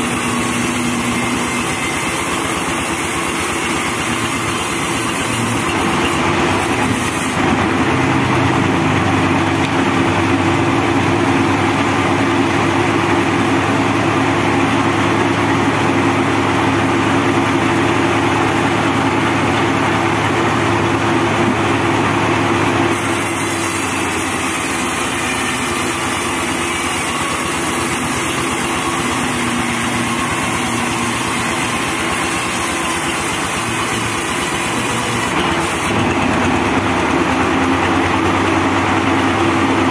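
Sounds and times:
saw blade hissing through log: 0.0s - 7.5s, 22.9s - 36.0s
band sawmill humming: 0.0s - 39.9s.

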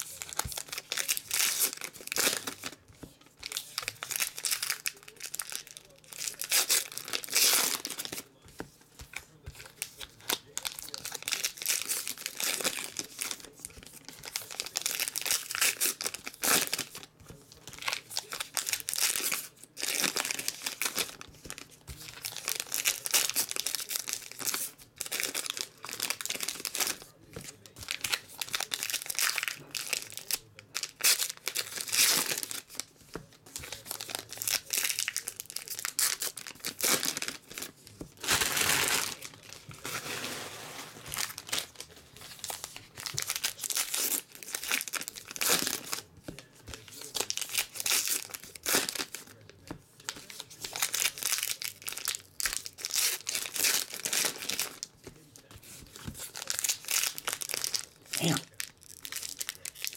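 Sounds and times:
card pack wrappers crinkling: 0.0s - 2.8s, 3.4s - 54.9s, 55.7s - 59.9s.

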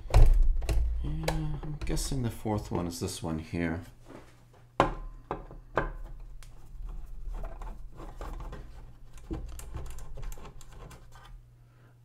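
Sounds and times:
screw scratching and ticking: 6.4s - 11.4s.

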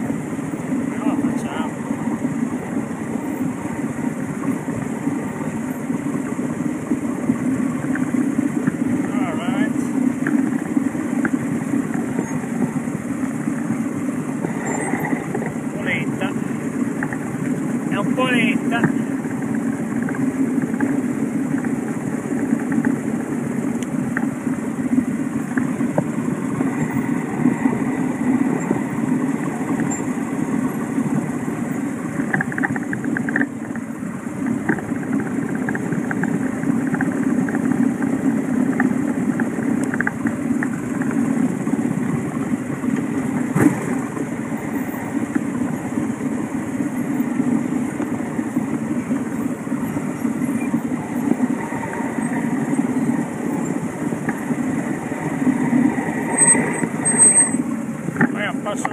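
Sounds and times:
motorcycle engine at low revs: 0.0s - 58.9s.

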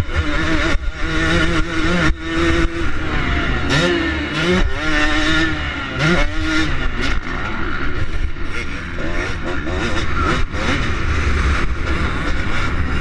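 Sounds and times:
motocross engine revving: 0.0s - 13.0s.

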